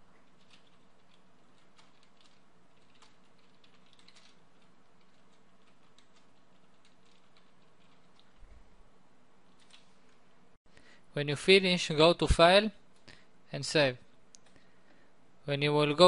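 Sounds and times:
low steady hum: 0:00.0 - 0:16.0
keyboard typing clicks: 0:00.3 - 0:08.4.

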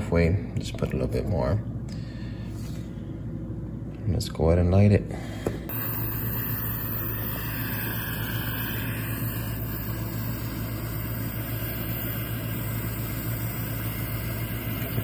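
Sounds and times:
torch lighter jet flame hissing: 0:05.7 - 0:15.0.

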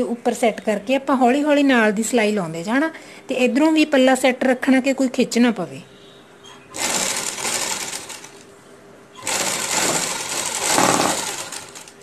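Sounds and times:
sewing machine stitching: 0:06.8 - 0:08.4, 0:09.2 - 0:12.0.

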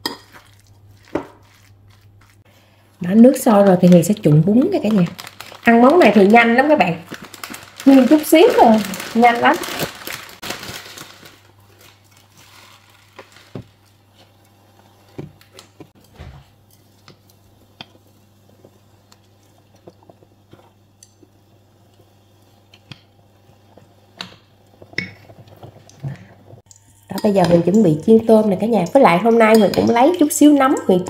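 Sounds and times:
utensils and dishes clicking: 0:28.7 - 0:31.0.

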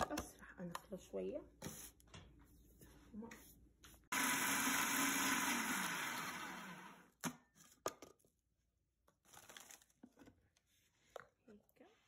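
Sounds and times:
food processor blade whirring: 0:04.1 - 0:07.2.

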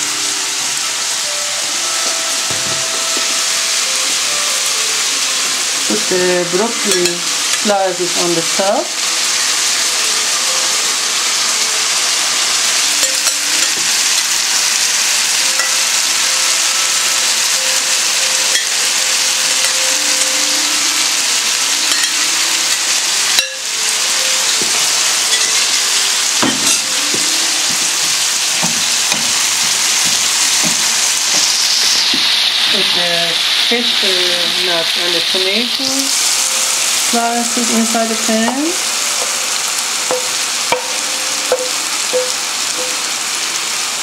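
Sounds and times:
food sizzling in a frying pan: 0:00.0 - 0:44.0
spatula knocking in pan: 0:40.1 - 0:42.4.

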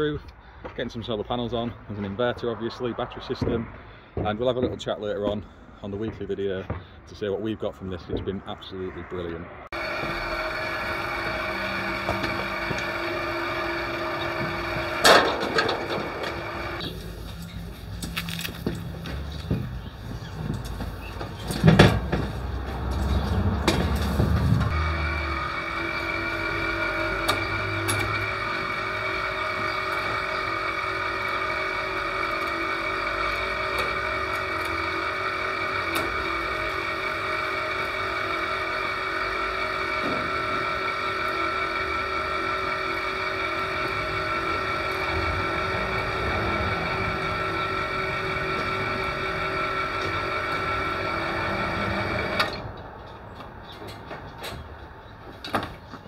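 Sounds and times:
hoist motor whining: 0:09.7 - 0:55.8.

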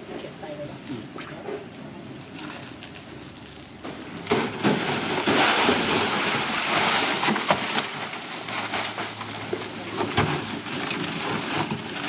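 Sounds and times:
hot oil sizzling and crackling: 0:00.4 - 0:09.9.

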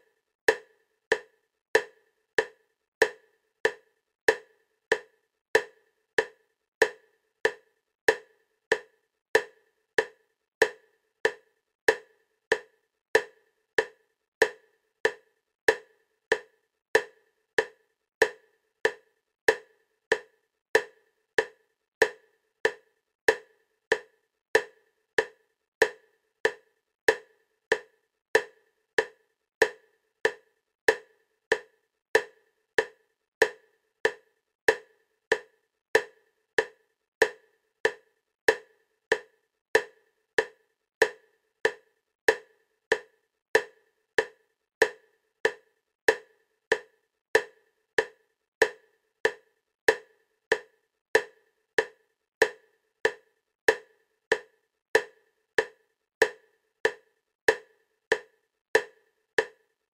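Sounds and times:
wood-block-like clicks: 0:00.5 - 0:59.6.

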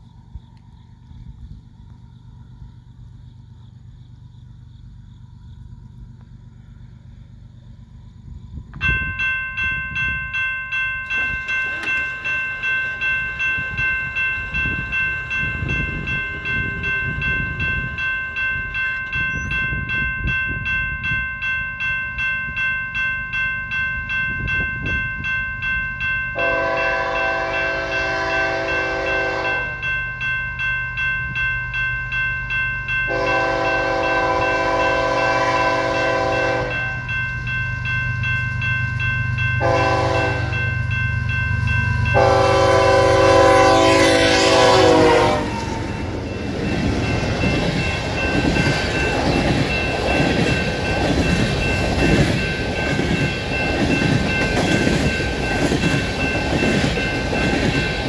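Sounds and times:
train rumbling: 0:00.0 - 0:58.0
railroad crossing bell ringing: 0:08.7 - 0:58.0
locomotive horn blasts: 0:26.4 - 0:29.8, 0:33.1 - 0:37.0, 0:39.6 - 0:40.6, 0:42.1 - 0:46.1.

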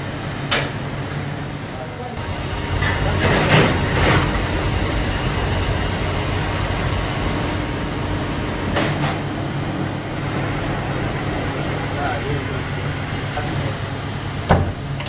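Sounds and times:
short noisy surges: 0:02.2 - 0:14.5
machine humming: 0:02.2 - 0:15.0.

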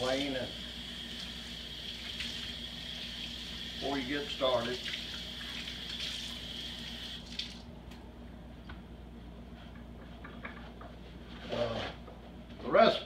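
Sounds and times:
tap running while washing hands: 0:00.0 - 0:07.6.

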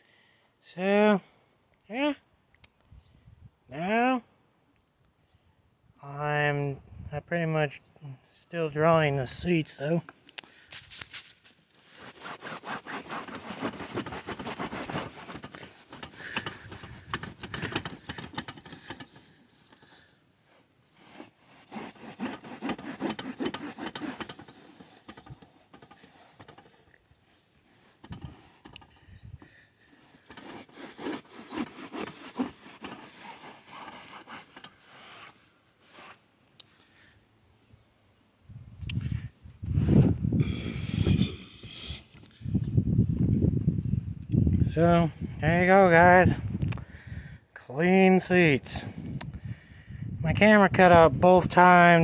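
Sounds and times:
scraping and rustling: 0:10.7 - 0:29.0, 0:29.8 - 0:36.2
phone handling rubbing noise: 0:10.8 - 0:20.0, 0:20.9 - 0:36.3.

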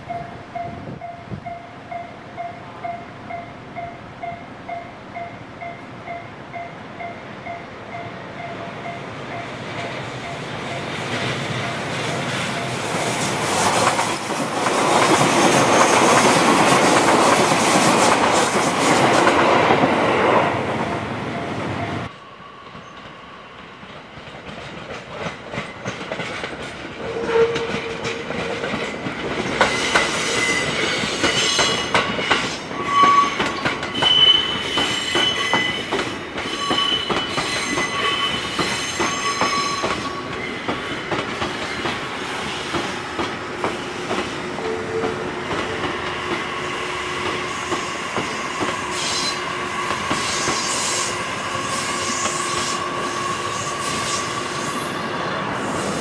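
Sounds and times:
electric train passing: 0:00.0 - 0:56.0
wheel squeals: 0:08.4 - 0:22.1, 0:29.6 - 0:41.9
wheels clacking over rail joints: 0:23.8 - 0:32.6.

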